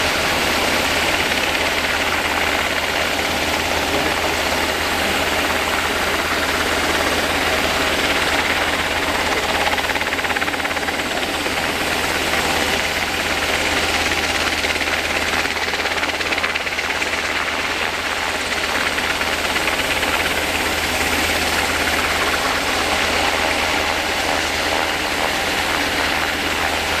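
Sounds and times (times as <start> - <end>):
helicopter rotor thrum: 0.0 - 27.0.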